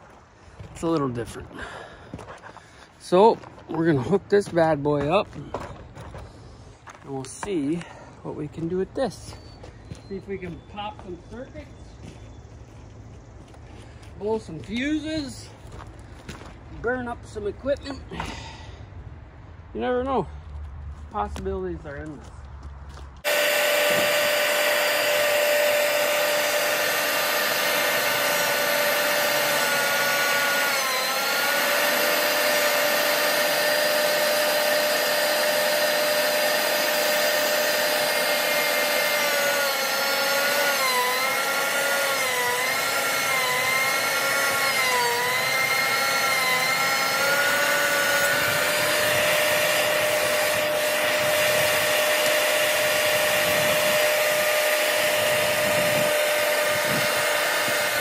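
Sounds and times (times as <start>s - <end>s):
thickness planer motor whine: 23.2s - 58.0s.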